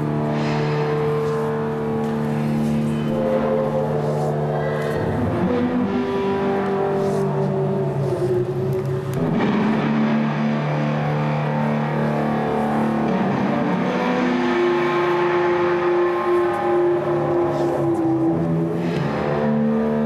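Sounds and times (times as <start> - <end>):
droning music of held tones: 0.0 - 20.0.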